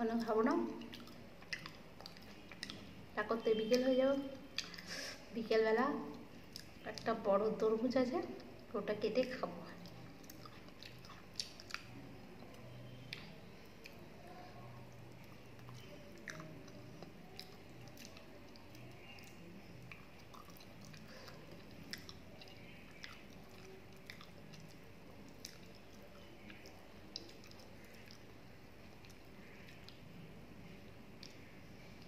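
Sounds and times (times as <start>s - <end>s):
faint steady hum: 0.0s - 32.0s
person chewing food: 0.2s - 3.0s, 4.4s - 5.2s, 6.1s - 7.1s, 9.8s - 14.1s, 14.9s - 30.1s.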